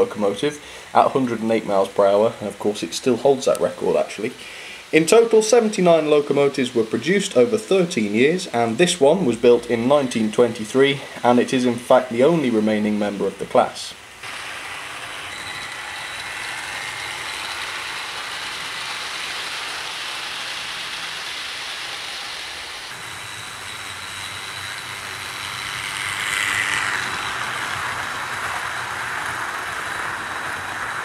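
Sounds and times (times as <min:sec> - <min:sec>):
model train motor whirring: 0:00.0 - 0:31.0
wheels rattling on rail: 0:14.2 - 0:31.0.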